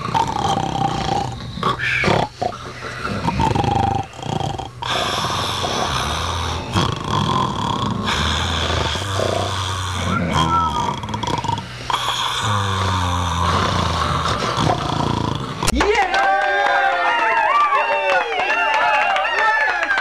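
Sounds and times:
dog grunting and snorting: 0:00.0 - 0:15.7.

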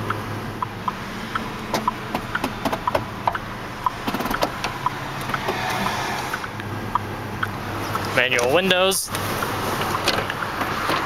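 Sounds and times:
hazard flasher ticking: 0:00.1 - 0:08.2.

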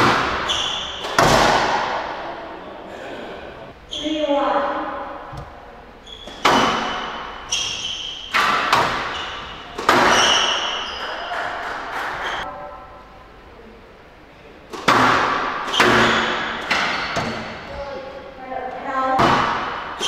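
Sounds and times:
squash ball hitting walls: 0:00.0 - 0:02.2, 0:05.3 - 0:12.4, 0:14.7 - 0:17.7, 0:19.1 - 0:20.0
shoes squeaking on court floor: 0:00.3 - 0:01.2, 0:05.3 - 0:12.4.

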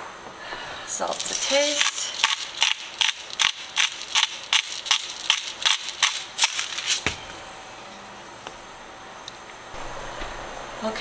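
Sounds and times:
salt shaker shaking: 0:01.1 - 0:07.1.

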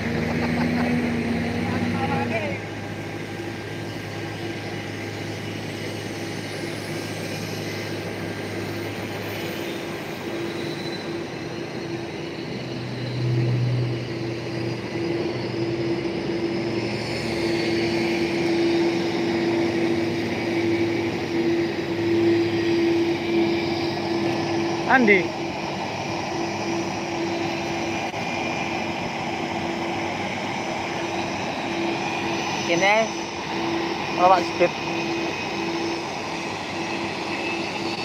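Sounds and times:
jet engines rushing: 0:00.0 - 0:38.0.

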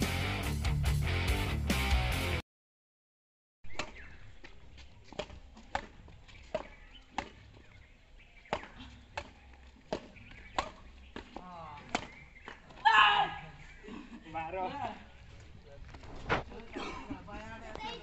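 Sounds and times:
rackets hitting shuttlecock: 0:03.7 - 0:07.6, 0:08.4 - 0:12.9.

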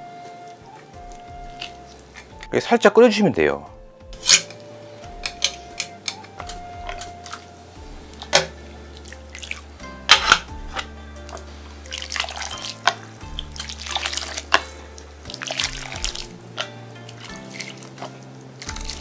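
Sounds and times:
background music: 0:00.0 - 0:19.0
metal ladle knocking on pot: 0:08.2 - 0:08.6
water poured from ladle splashing: 0:08.3 - 0:09.7, 0:11.8 - 0:19.0.

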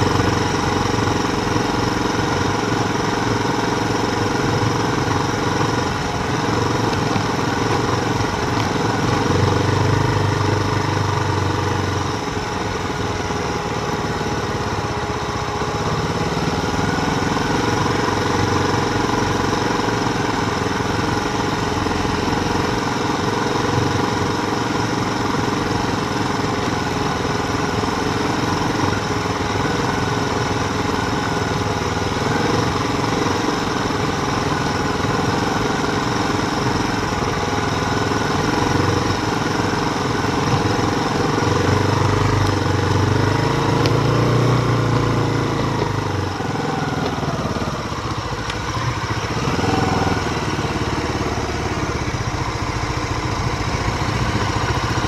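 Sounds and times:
mountain bike rolling: 0:03.0 - 0:10.6.

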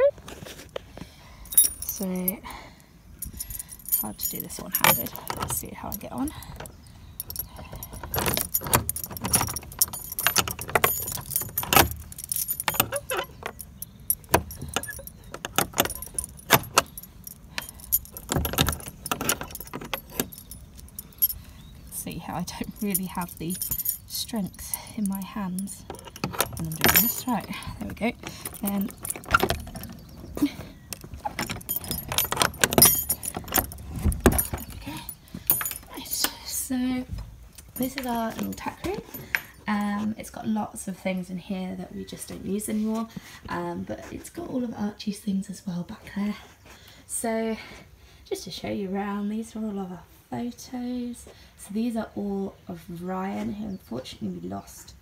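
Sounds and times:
keys jangling: 0:01.4 - 0:02.6, 0:03.2 - 0:36.7, 0:37.5 - 0:40.1
padlock rattling against hasp: 0:01.4 - 0:39.9.

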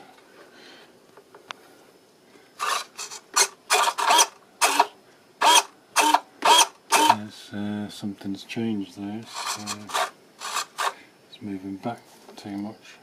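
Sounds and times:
servo whirring: 0:02.6 - 0:07.2, 0:09.3 - 0:11.0.

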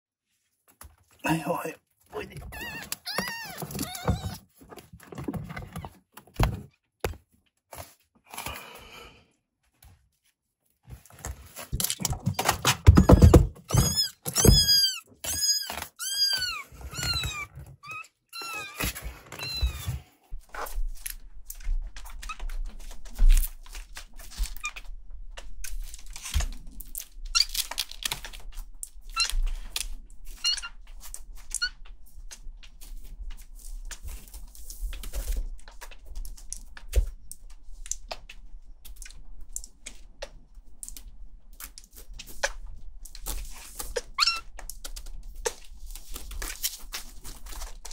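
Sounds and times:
kittens mewing: 0:02.4 - 0:04.4
kittens scratching on wooden floor: 0:02.4 - 0:06.6.

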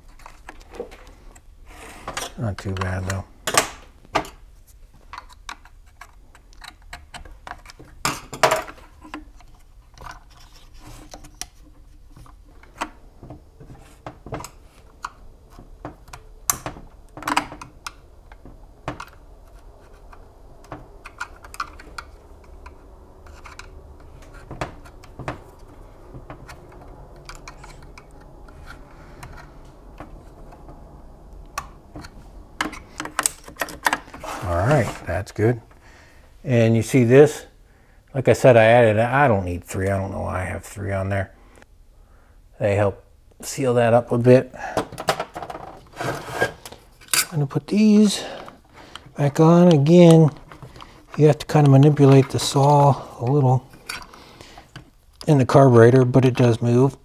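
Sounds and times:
plastic parts clicking and scraping: 0:00.0 - 0:35.0, 0:48.0 - 0:55.0.

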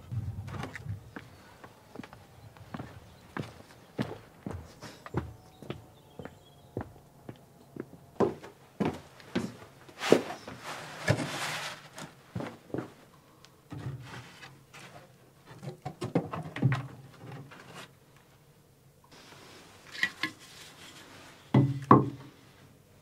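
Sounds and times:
hand tools and pipe fittings clattering: 0:19.8 - 0:22.3.

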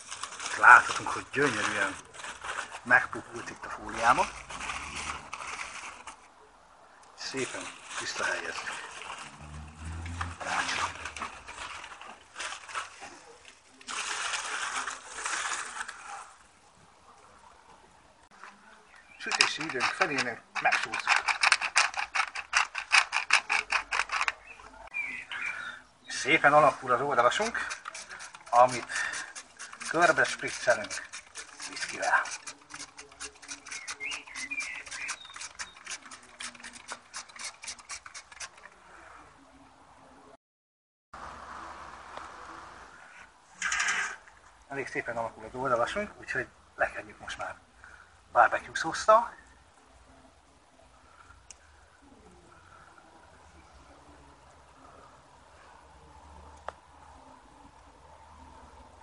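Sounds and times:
aluminium foil crinkling: 0:00.0 - 0:06.3, 0:07.2 - 0:16.5, 0:19.0 - 0:24.8, 0:26.2 - 0:39.2
spray bottle squirting: 0:27.4 - 0:38.7.

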